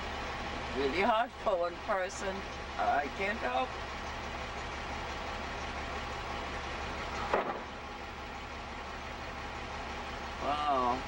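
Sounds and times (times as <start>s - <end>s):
truck engine idling: 0.0s - 11.0s.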